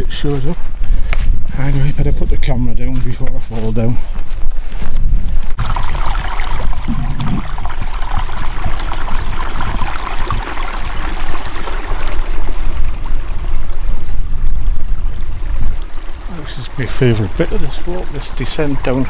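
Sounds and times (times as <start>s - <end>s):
low rumble: 5.5s - 10.5s
stream trickling over stones: 5.6s - 14.0s, 15.0s - 19.0s.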